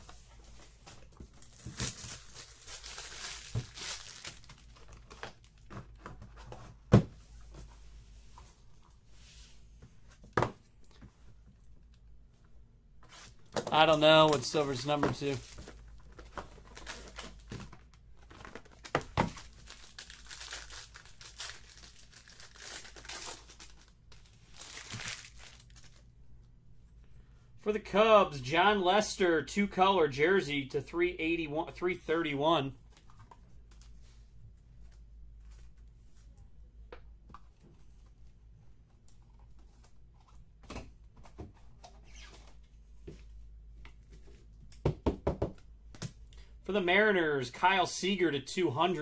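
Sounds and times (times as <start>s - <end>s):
plastic wrapper crinkling and tearing: 1.3s - 5.7s, 15.2s - 26.0s.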